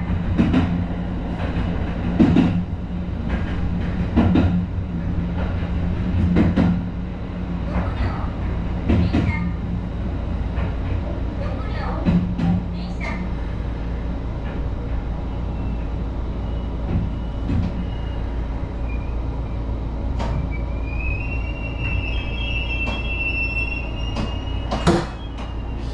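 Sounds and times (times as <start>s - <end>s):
train running rumble: 0.0s - 25.9s.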